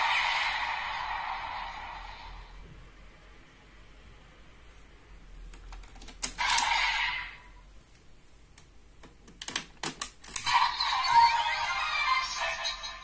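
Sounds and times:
electronic whoosh: 0.0 - 2.7.

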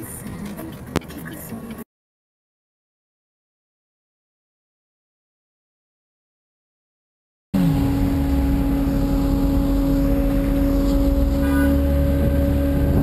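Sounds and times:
road rumble: 7.6 - 13.0
vehicle engine humming: 7.6 - 13.0.

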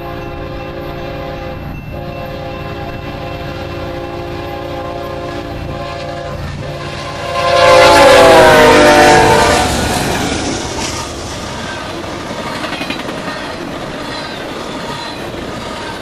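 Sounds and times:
locomotive horn chord: 0.0 - 12.1
freight train rumbling: 0.0 - 16.0.

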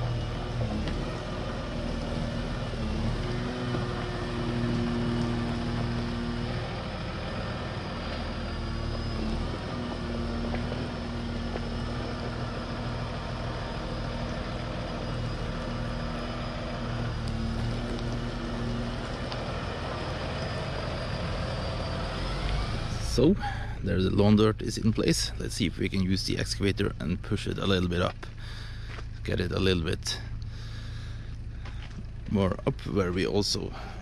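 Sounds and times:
diesel engine running: 0.0 - 34.0.

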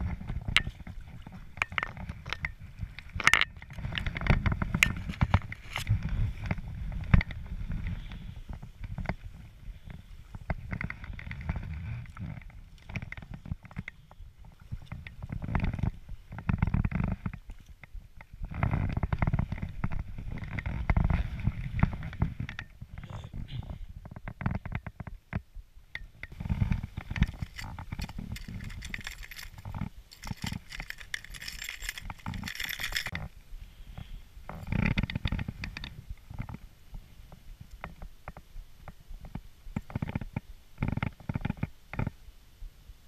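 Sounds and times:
hands handling fishing lure: 27.1 - 33.2.

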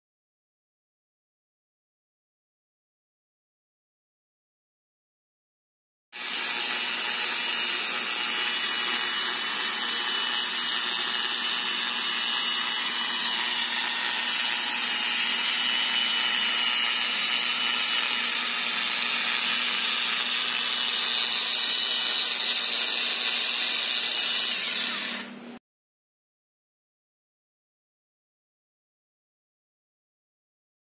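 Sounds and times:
rotary polisher motor whine: 6.2 - 25.4.

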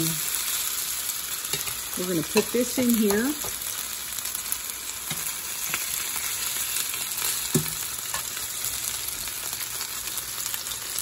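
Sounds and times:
beef sizzling in hot oil: 0.0 - 11.0.

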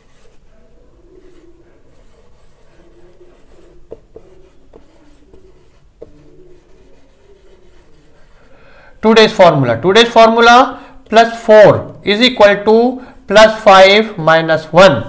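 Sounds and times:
marker squeaking on whiteboard: 0.0 - 8.6.

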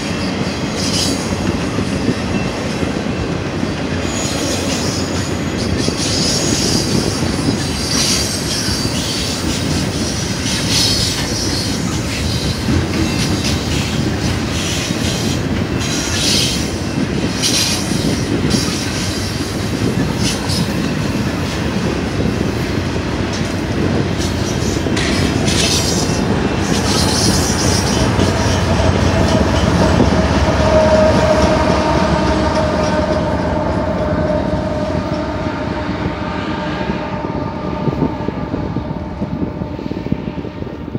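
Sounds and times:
train wheels squealing: 0.0 - 21.4, 24.2 - 35.4
freight train rumble and clatter: 0.0 - 40.9
locomotive engine tone: 25.2 - 40.8.

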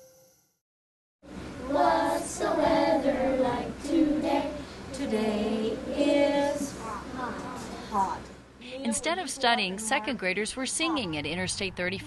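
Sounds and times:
children singing together: 1.6 - 7.7.

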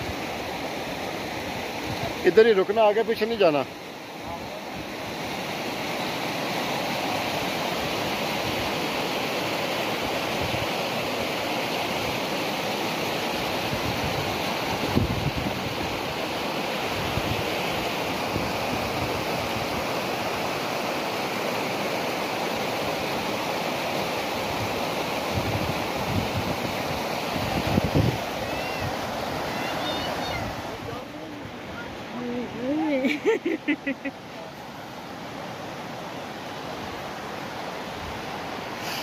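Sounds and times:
stream rushing over rocks: 0.0 - 39.0
wind buffeting microphone: 13.7 - 16.0, 25.3 - 32.7.

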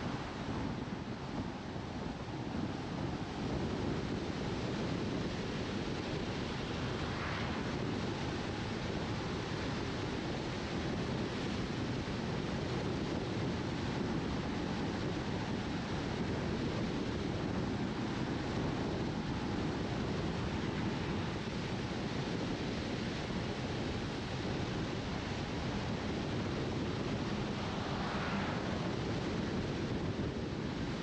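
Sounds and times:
wind noise of driving car: 0.0 - 31.0
car tyre rumble on asphalt: 17.8 - 31.0.

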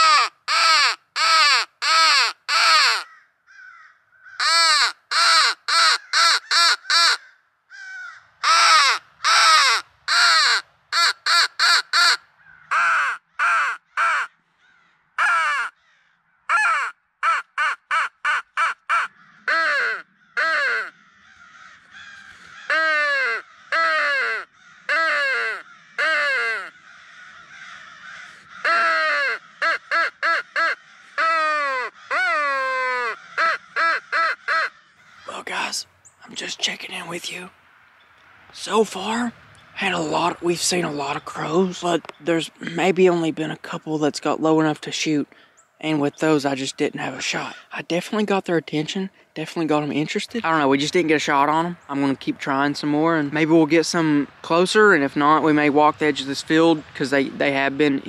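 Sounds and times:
fainter caws: 0.0 - 35.3
crow call harsh caws: 0.0 - 35.4.

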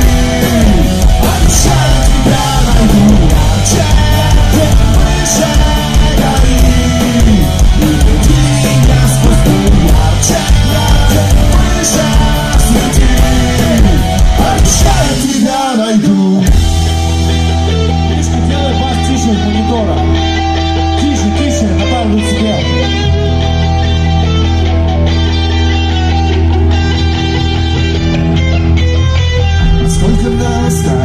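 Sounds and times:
drums with cymbal hits: 0.0 - 15.6
electric bass guitar: 0.0 - 31.0
electric guitars: 0.0 - 31.0
punk rock band playing: 0.0 - 31.0.

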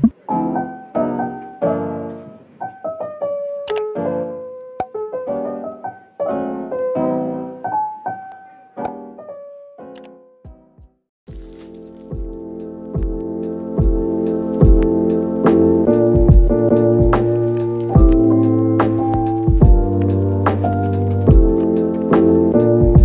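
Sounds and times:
piano melody: 0.0 - 23.0.

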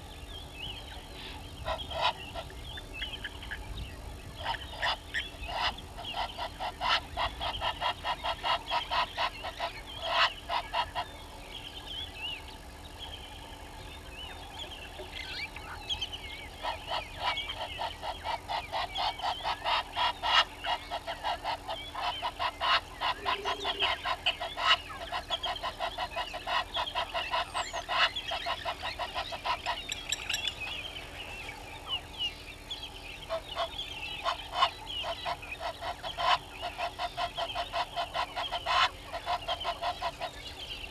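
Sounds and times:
guineafowl cackling chorus: 0.0 - 40.9
small birds chirping: 0.0 - 40.9.

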